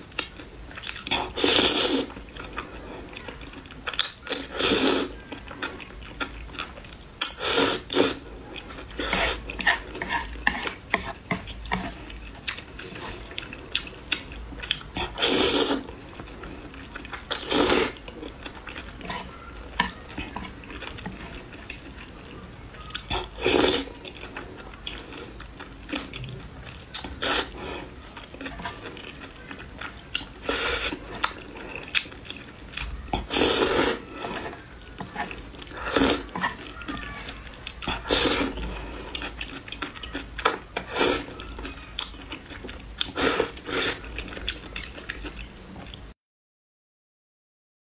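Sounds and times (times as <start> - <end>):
wet chewing and mouth smacks: 0.1 - 4.5, 8.6 - 15.2
person slurping noodles: 1.2 - 2.2, 4.3 - 5.2, 7.3 - 8.3, 8.9 - 12.1, 15.0 - 16.0, 17.4 - 18.0, 23.0 - 24.0, 27.0 - 27.9, 30.4 - 31.9, 33.2 - 36.6, 37.9 - 39.4, 43.1 - 44.1.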